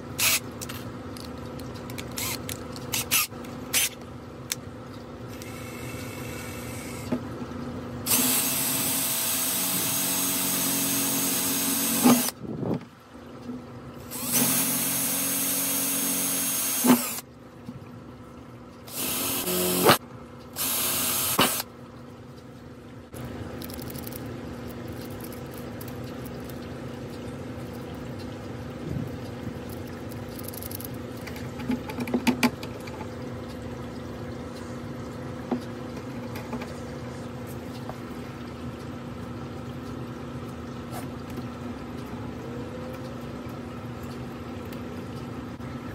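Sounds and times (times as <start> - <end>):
power drill boring through plastic: 8.1 - 12.3, 14.1 - 17.2, 18.9 - 20.0, 20.6 - 21.6.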